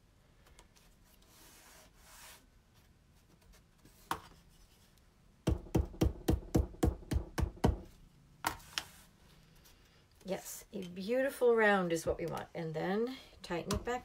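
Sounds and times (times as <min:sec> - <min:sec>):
hand rubbing a book spine: 0:00.8 - 0:05.0.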